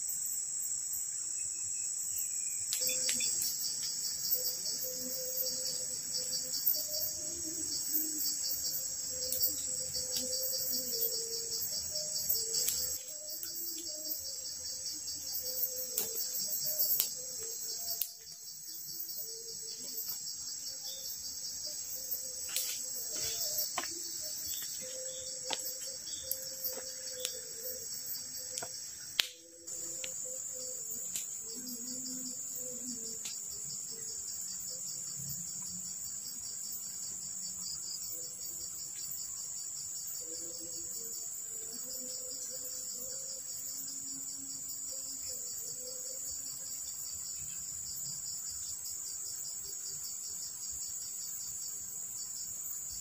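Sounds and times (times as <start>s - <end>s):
crickets and insects chorus: 0.0s - 53.0s
sharp snaps and cracks: 12.5s - 14.0s, 16.8s - 17.2s, 25.4s - 27.4s, 28.5s - 30.2s, 31.0s - 31.4s, 33.2s - 33.4s.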